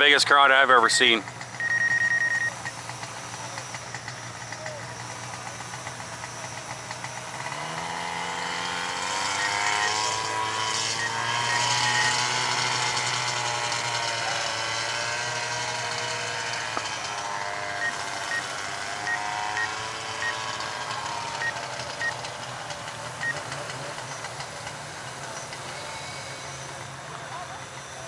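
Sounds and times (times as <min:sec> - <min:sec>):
drone propellers whining: 0:00.0 - 0:28.0
short high beeps: 0:01.6 - 0:02.7, 0:10.9 - 0:12.2.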